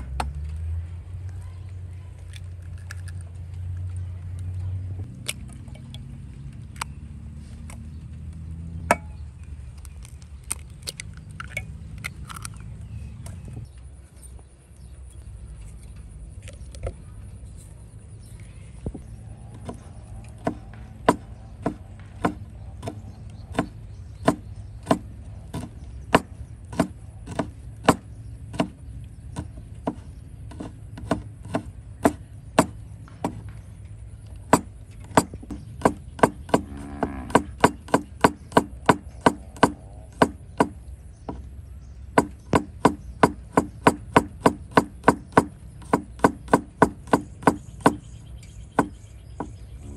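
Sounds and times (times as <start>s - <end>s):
blade chopping wood: 8.8s - 9.2s, 19.6s - 33.7s, 34.4s - 41.5s, 42.2s - 48.1s.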